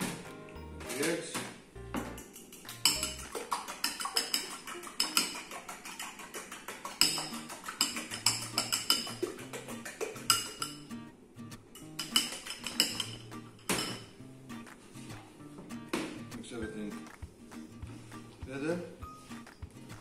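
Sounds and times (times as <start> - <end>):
background music: 0.0 - 5.5, 7.0 - 20.0
fork clinking against ceramic bowl: 2.2 - 6.3, 6.9 - 10.9, 11.8 - 14.1.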